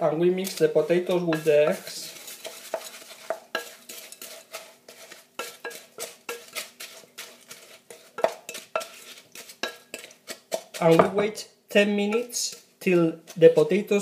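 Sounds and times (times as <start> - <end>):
wooden spoon scraping glass bowl: 0.4 - 11.2.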